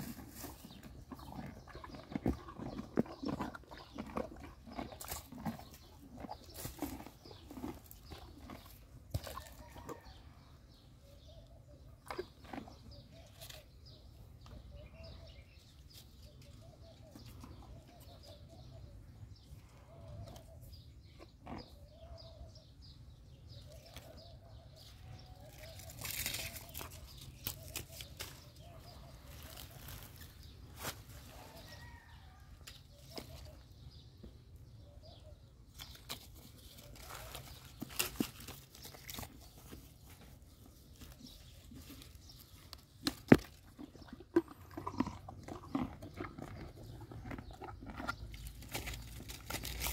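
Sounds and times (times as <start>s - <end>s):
horse chewing leaves and fruit: 0.0s - 49.9s
leaves rustling: 29.3s - 31.4s.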